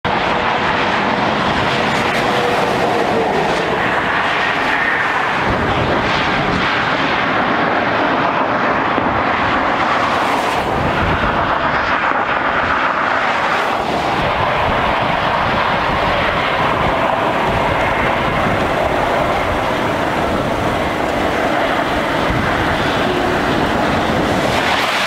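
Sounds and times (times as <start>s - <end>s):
tyres on wet slushy road: 0.1s - 25.0s
highway traffic hiss: 9.5s - 25.0s.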